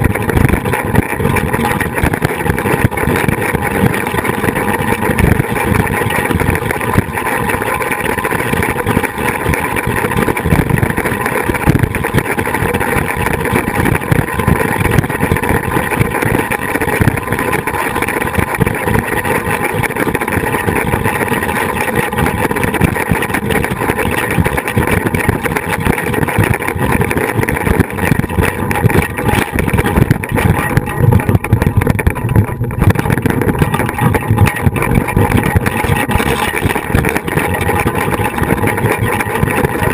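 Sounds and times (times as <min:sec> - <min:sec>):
pulleys rolling whir on cable: 0:00.0 - 0:39.9
wind buffeting camera: 0:00.0 - 0:39.9.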